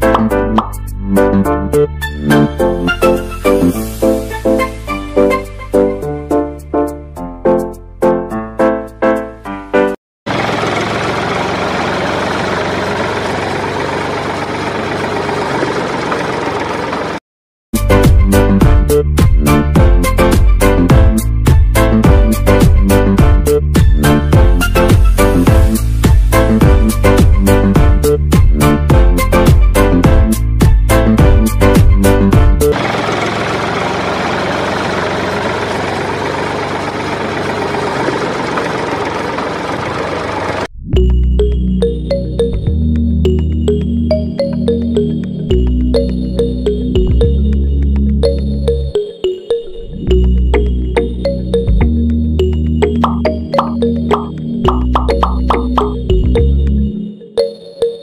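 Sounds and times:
engine idling with rattling hum: 0:10.3 - 0:17.2, 0:32.7 - 0:40.7.

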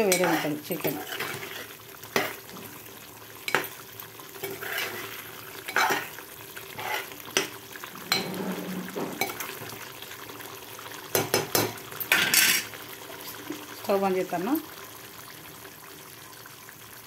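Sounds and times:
metal spoon stirring in pot: 0:00.0 - 0:02.5, 0:03.5 - 0:03.8, 0:04.4 - 0:09.6
faint sizzle of cooking: 0:00.0 - 0:17.0.

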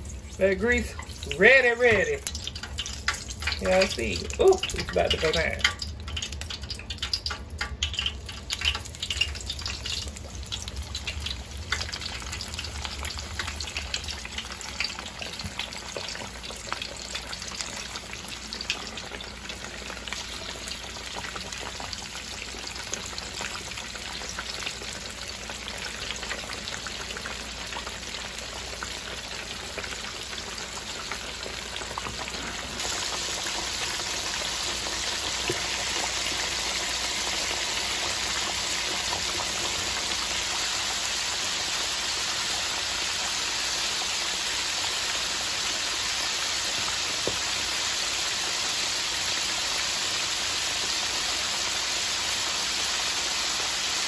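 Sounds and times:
fish deep-frying in oil: 0:00.0 - 0:54.0
oil popping: 0:00.1 - 0:24.4.

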